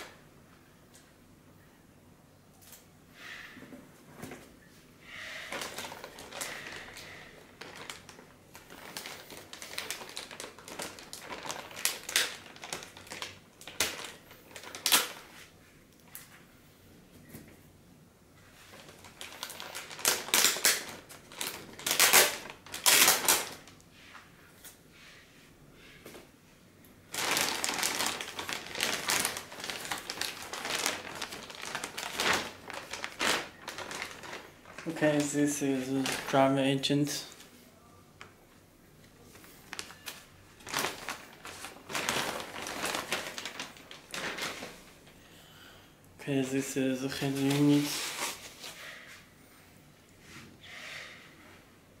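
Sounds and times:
plastic bag rustling: 5.4 - 15.6, 18.4 - 23.8, 27.0 - 37.6, 39.1 - 45.2, 46.4 - 49.2.

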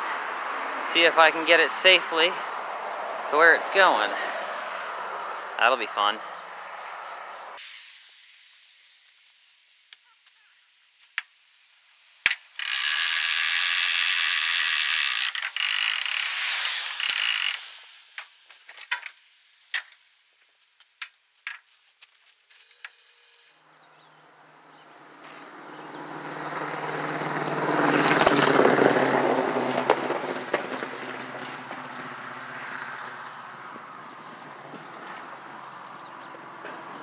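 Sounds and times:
ratchet strap rasping pull: 12.3 - 17.7.

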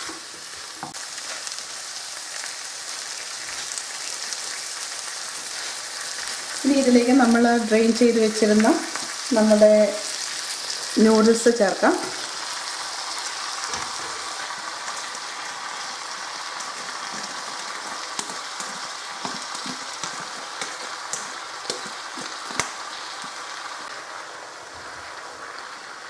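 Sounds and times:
noodles sizzling in a wok: 0.0 - 26.0
utensils scraping a pan: 16.6 - 22.7.

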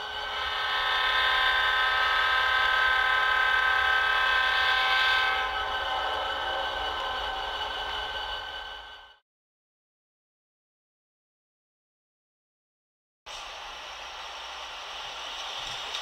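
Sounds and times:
locomotive air horn chord: 0.2 - 9.0.

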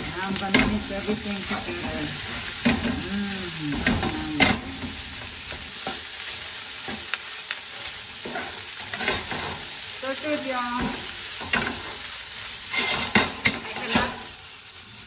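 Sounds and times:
rice sizzling in a pan: 0.0 - 15.0
spatula scraping and knocking pan: 8.1 - 9.7, 10.8 - 14.3.

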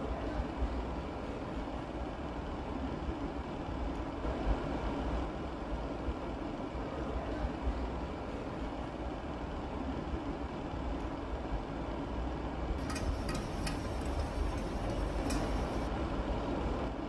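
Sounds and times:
machinery rumble and hiss: 12.8 - 16.6.

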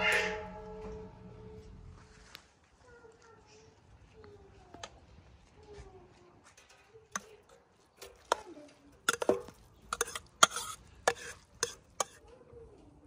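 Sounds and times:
metal spoon clinking on steel pot: 7.2 - 12.2.

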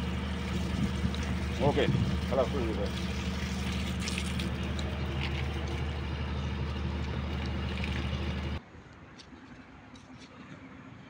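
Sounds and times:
hose spraying water: 0.0 - 8.6
motor humming: 0.0 - 8.6.

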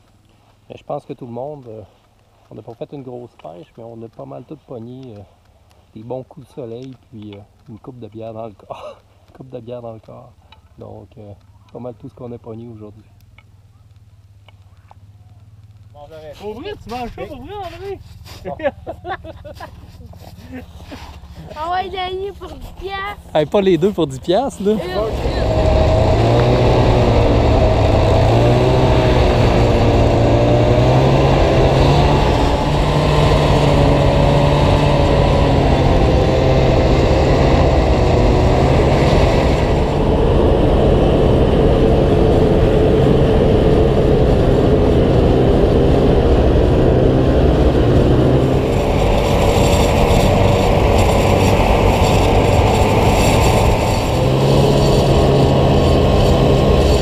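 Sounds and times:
snowmobile engine running: 13.8 - 57.0.

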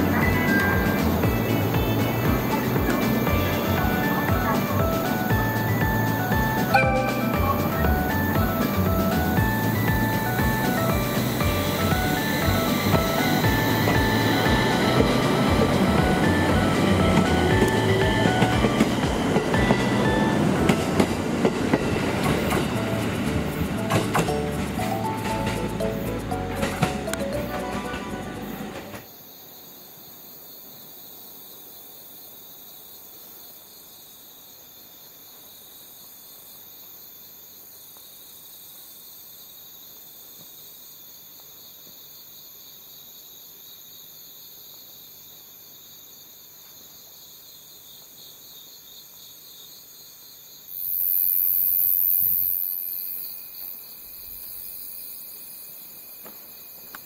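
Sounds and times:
very high hiss: 0.0 - 29.1, 50.7 - 56.0
crickets trilling: 0.0 - 57.0.

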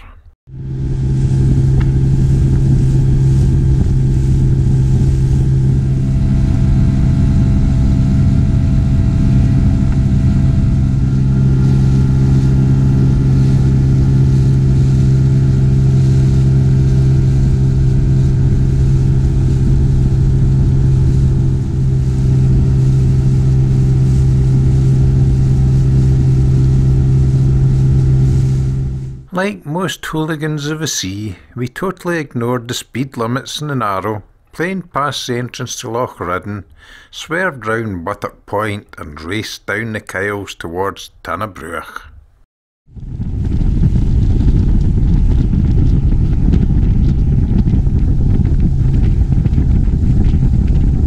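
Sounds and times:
outboard motor running: 0.5 - 29.3, 43.0 - 51.0
rush of wind and water: 0.6 - 29.2, 42.9 - 51.0.

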